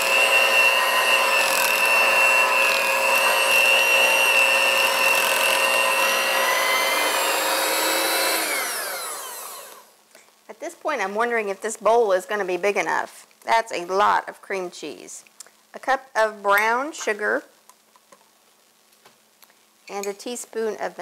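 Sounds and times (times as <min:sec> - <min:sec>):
electric hand mixer whining: 0:00.0 - 0:09.9.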